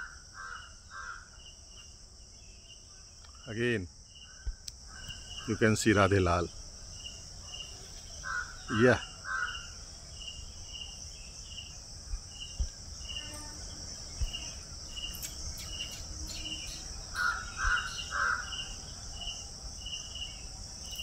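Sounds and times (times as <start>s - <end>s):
insects chirping: 0.0s - 21.0s.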